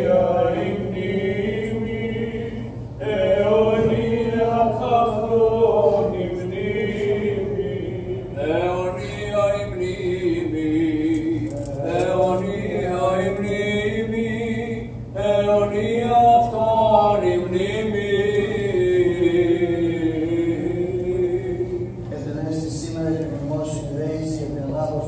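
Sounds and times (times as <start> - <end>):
voices chanting: 0.0 - 11.0.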